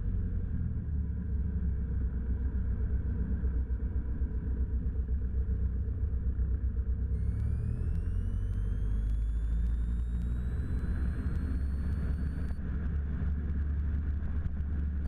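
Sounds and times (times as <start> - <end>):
airplane engine and propeller droning: 0.0 - 15.0.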